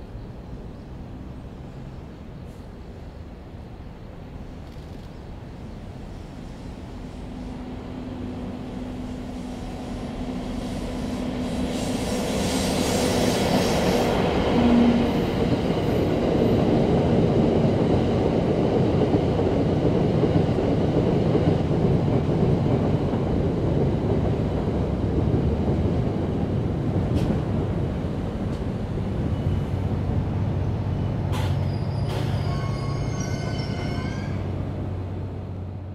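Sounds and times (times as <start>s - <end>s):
wheels rumbling on rail: 0.0s - 35.9s
electric locomotive hum: 5.6s - 35.9s
rush of hiss: 9.0s - 14.2s.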